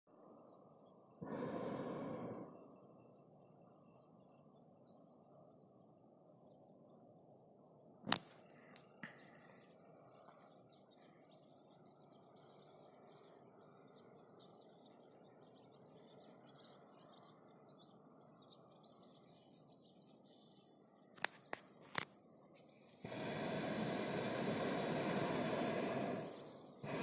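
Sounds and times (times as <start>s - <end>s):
bird chirps: 0.3s - 7.8s, 8.5s - 27.0s
background hiss: 22.6s - 27.0s.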